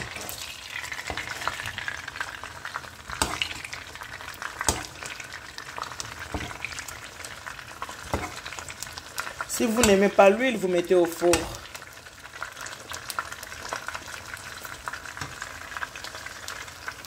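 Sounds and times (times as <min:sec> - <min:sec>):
fish frying in oil: 0:00.0 - 0:17.0
metal spoon knocking pan: 0:04.6 - 0:05.1, 0:08.0 - 0:08.5, 0:09.6 - 0:10.2.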